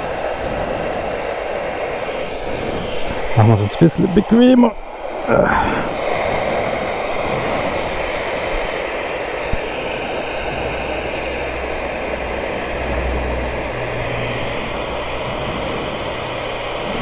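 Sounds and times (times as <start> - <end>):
hair dryer running: 0.0 - 17.0.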